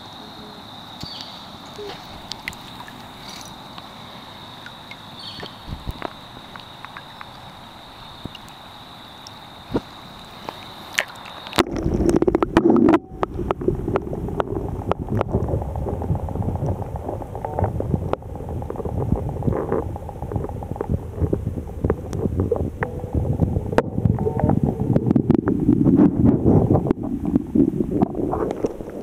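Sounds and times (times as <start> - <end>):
underwater river rumble: 0.0 - 29.0.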